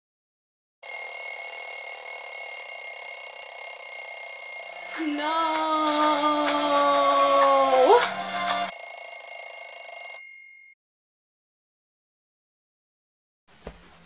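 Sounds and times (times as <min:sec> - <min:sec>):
smartphone alarm ringing: 0:00.8 - 0:10.8
woman groaning: 0:05.0 - 0:08.7.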